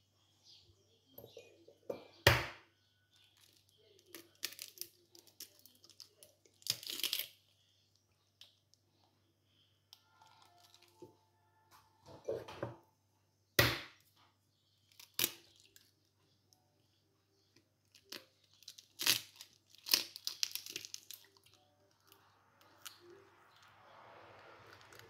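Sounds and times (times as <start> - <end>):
eggshell crackling: 3.1 - 8.8, 14.8 - 16.5, 17.4 - 23.7.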